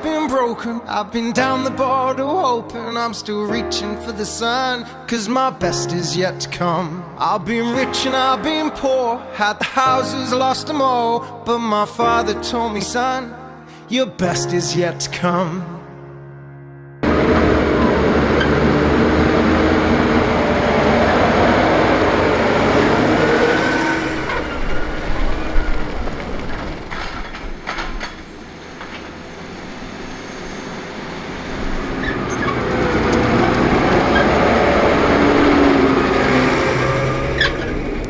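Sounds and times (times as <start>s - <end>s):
tyre noise: 17.0s - 29.4s
tractor engine passing: 17.0s - 38.0s
wheel loader working: 17.0s - 38.0s.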